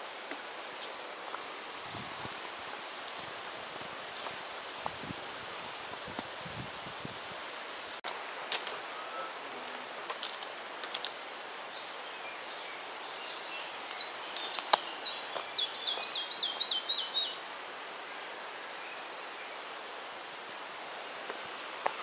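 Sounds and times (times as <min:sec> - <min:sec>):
steady background hiss: 0:00.0 - 0:22.0
songbird singing: 0:08.1 - 0:19.9.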